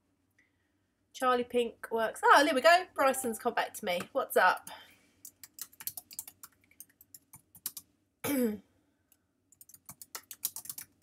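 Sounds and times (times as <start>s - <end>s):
computer keyboard typing: 5.2s - 7.9s, 9.5s - 11.0s.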